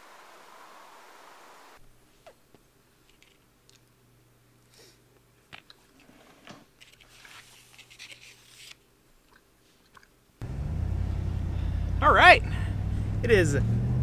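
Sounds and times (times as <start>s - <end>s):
low steady hum: 8.8s - 14.0s
vehicle engine rumble: 10.4s - 14.0s.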